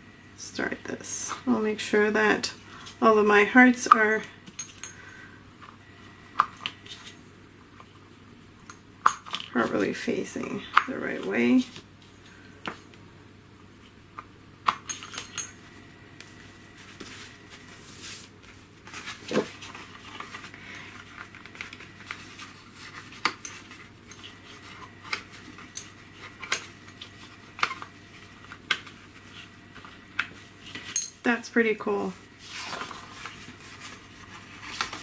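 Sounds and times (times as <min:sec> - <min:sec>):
paper rustling: 0:16.8 - 0:25.6, 0:32.4 - 0:35.0.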